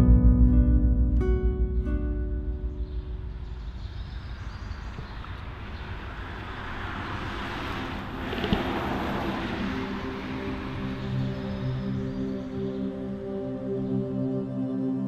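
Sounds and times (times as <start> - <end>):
rushing noise: 3.6 - 13.3.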